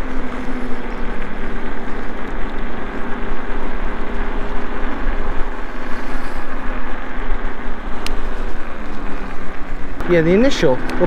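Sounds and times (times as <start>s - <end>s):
electric scooter motor and tyre hum: 0.0s - 11.0s
wind rumble on microphone: 0.0s - 11.0s.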